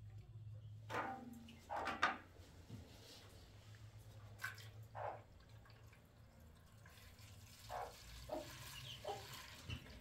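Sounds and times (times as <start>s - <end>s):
water trickling into metal tray: 4.4s - 10.0s.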